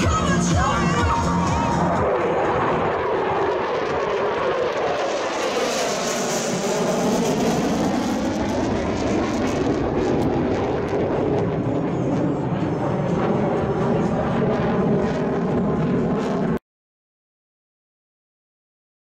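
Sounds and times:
jets passing overhead: 0:00.0 - 0:16.6.

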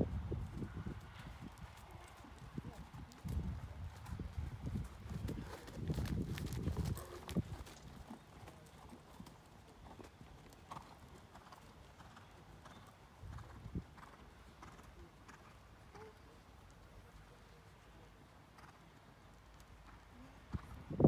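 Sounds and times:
horse hoofbeats: 0:00.5 - 0:11.6.

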